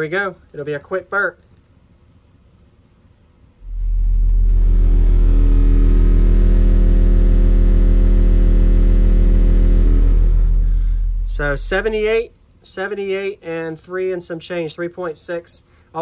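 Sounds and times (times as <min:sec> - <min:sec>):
subwoofer low test tone: 0:03.6 - 0:12.4.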